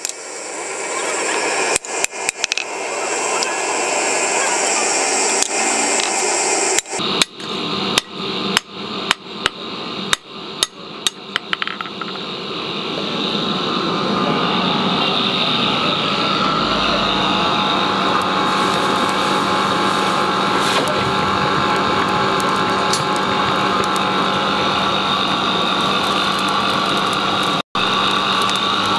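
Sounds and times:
steady whirring noise: 0.0s - 28.9s
hammer striking metal on anvil: 8.0s - 12.2s.

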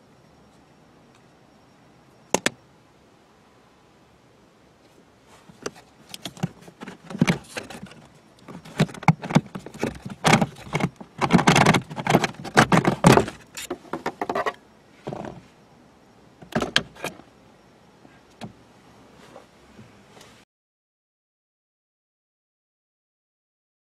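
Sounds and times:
filter scraping and rustling: 4.8s - 15.6s.

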